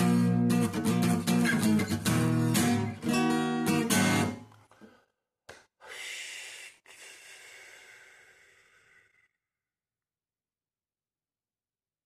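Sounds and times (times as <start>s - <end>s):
acoustic guitar strummed chords: 0.0s - 4.4s.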